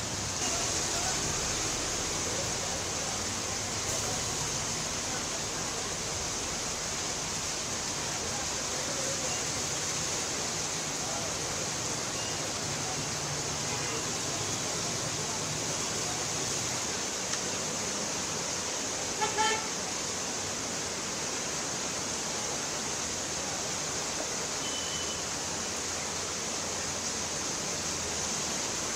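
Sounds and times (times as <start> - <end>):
heavy rain on flooded street: 0.0 - 28.9
vehicle horn honk: 19.2 - 19.7, 24.6 - 25.2.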